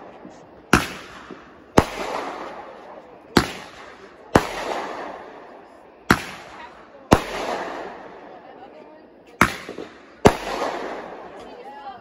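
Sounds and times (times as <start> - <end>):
fireworks bursting overhead: 0.0 - 12.0.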